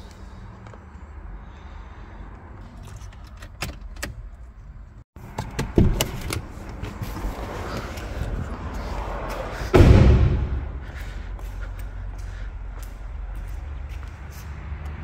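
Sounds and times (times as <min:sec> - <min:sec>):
thud: 0:09.7 - 0:11.0
low rumble: 0:09.7 - 0:11.6.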